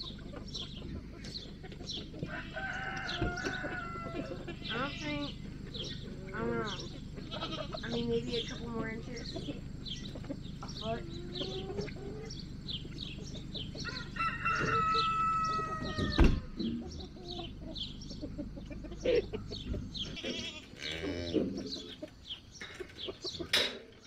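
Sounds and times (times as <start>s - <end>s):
chickens clucking and chirping: 0.0s - 24.0s
low steady hum: 0.0s - 24.0s
rooster crowing: 2.2s - 4.7s, 13.7s - 16.6s.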